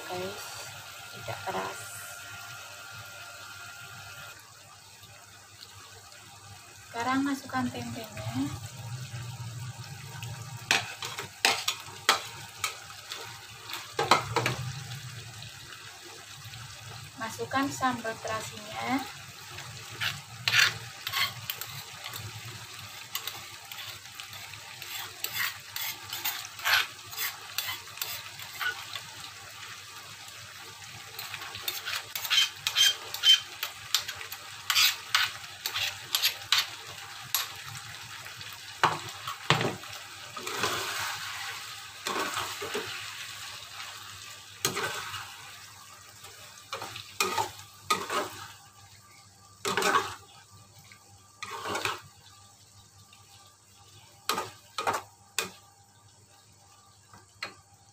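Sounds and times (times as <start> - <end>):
frying sizzle: 0.0 - 57.9
metal utensils scraping and clacking: 19.9 - 22.3, 23.1 - 28.9, 31.2 - 37.6, 46.7 - 48.5, 49.6 - 50.2, 51.4 - 52.0.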